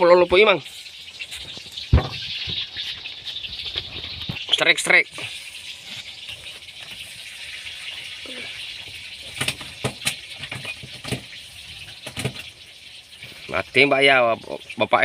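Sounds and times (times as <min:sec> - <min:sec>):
fishing line knocks and rattles: 0:12.0 - 0:12.5.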